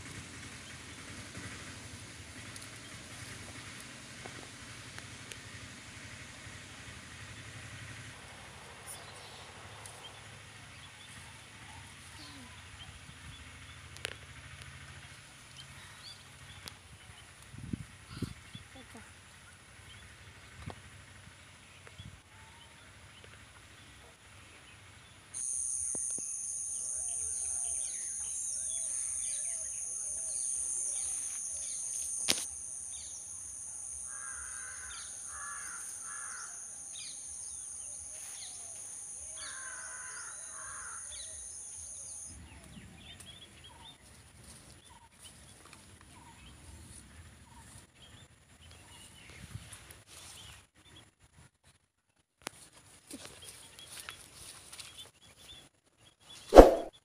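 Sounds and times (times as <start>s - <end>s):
high-pitched two-tone whine: 25.4s - 29.2s
crow cawing: 34.1s - 36.6s, 39.4s - 41.1s.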